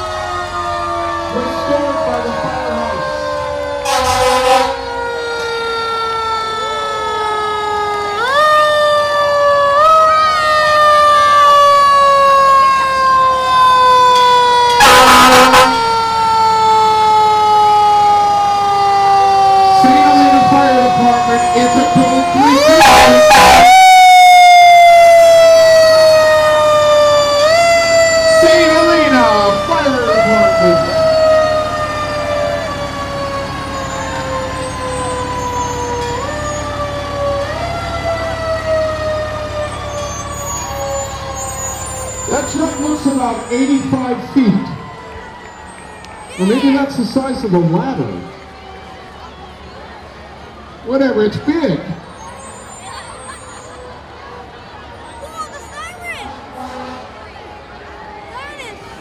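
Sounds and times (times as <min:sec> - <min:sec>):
siren winding down: 0:00.0 - 0:50.2
air horn blast: 0:03.8 - 0:04.8, 0:14.8 - 0:15.8, 0:22.0 - 0:23.8, 0:56.5 - 0:57.2.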